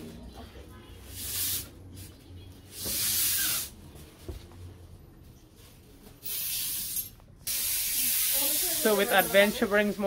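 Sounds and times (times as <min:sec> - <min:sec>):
gas hissing into balloon: 0:01.1 - 0:01.7, 0:02.7 - 0:03.7, 0:06.3 - 0:09.1.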